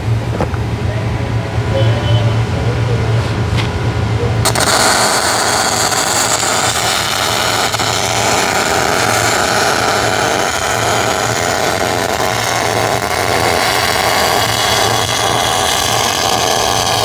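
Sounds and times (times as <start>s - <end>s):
low hum: 0.0s - 17.0s
welding arc sizzling hiss: 4.4s - 17.0s.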